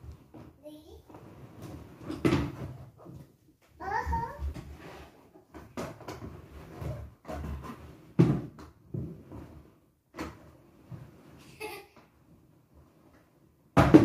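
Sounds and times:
plastic bucket thumping on wooden floor: 8.2 - 9.2, 13.8 - 14.0.

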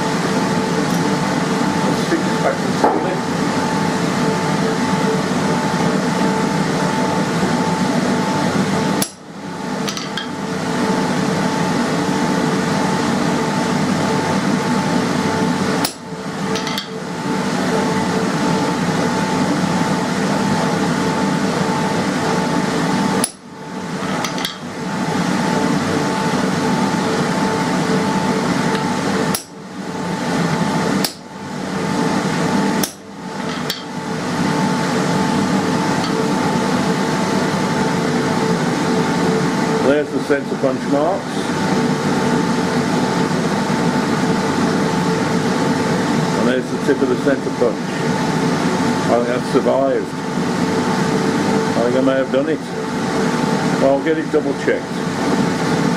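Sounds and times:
steady mechanical hum: 0.0 - 55.9
hammer striking steel punch: 9.0 - 9.2, 15.8 - 16.0.

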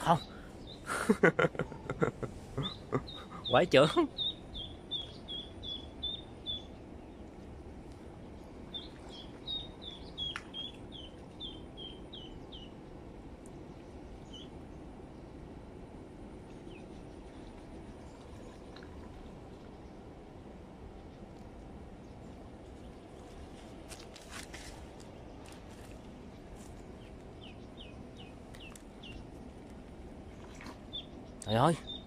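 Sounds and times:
steady outdoor hiss: 0.0 - 32.0
duckling peeping: 2.6 - 6.7, 8.7 - 12.7.

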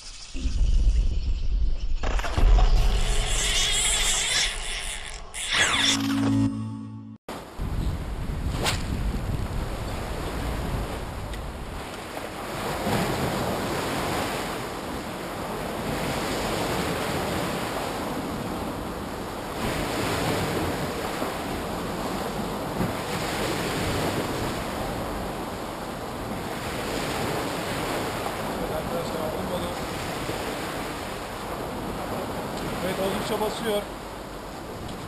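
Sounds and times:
sea waves breaking: 7.3 - 35.0
wind buffeting microphone: 7.4 - 29.0.

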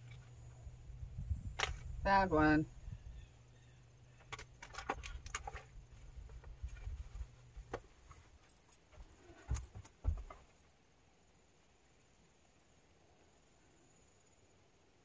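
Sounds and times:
handling rubbing noise: 5.0 - 10.6.

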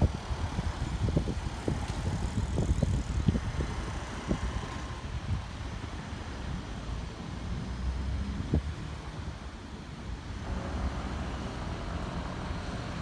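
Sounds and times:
distant road traffic: 0.0 - 13.0
wind buffeting microphone: 0.0 - 13.0.

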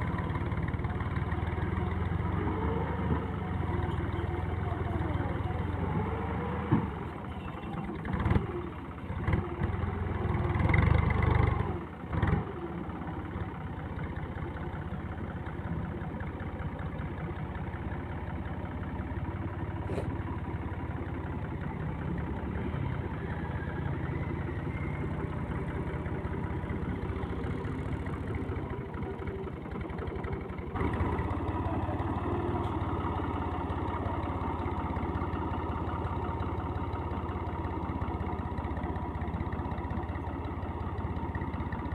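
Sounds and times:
tractor diesel engine labouring: 0.0 - 41.9.

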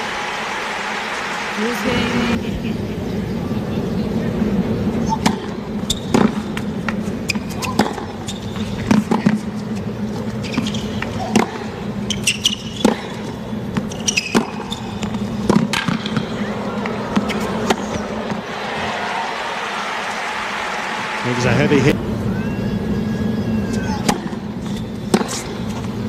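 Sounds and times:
crowd murmur: 0.0 - 5.7, 16.0 - 24.0
shoe squeaks: 5.0 - 6.2, 7.2 - 8.8, 10.2 - 15.4, 22.4 - 26.0
tennis ball racket strikes: 10.6 - 18.4, 24.0 - 25.9.

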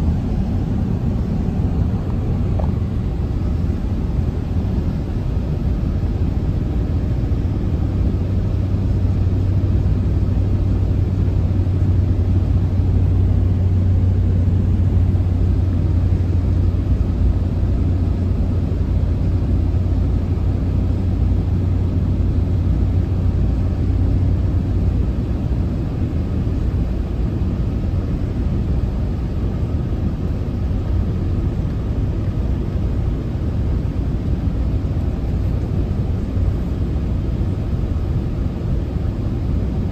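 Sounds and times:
low hum: 0.0 - 26.7
road and engine noise in cabin: 0.0 - 39.9.

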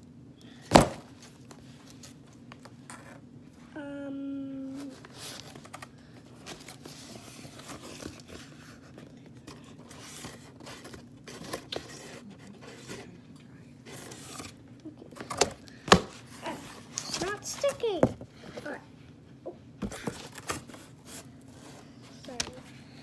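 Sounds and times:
cardboard rustling and scraping: 4.8 - 13.2, 13.8 - 14.6, 19.8 - 22.6.

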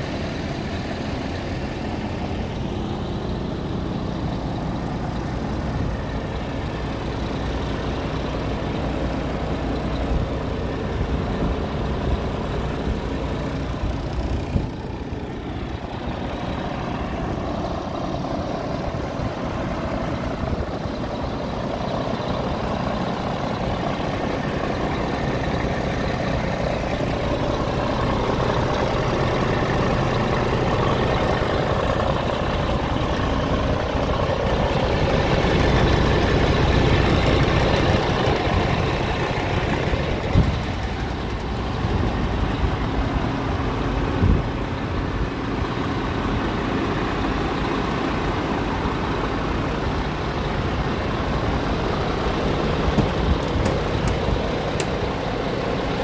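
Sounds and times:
diesel truck engine idling: 0.0 - 56.0
short knocks: 52.9 - 54.9.

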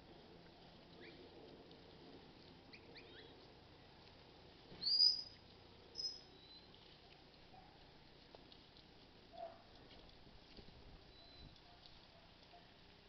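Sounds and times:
high-pitched whistled chirps: 4.8 - 5.3, 6.0 - 6.6.

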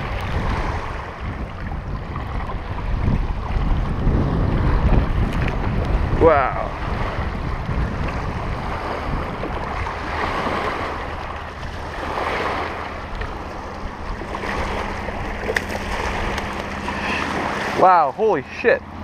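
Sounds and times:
waves washing onto rocks: 0.0 - 3.2, 4.9 - 18.8
wind rumbling on microphone: 0.0 - 19.0.

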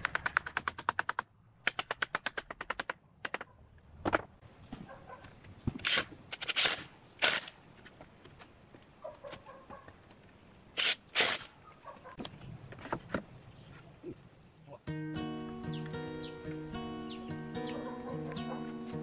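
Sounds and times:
impact driver driving screws into wood: 5.7 - 7.5, 10.8 - 11.5.

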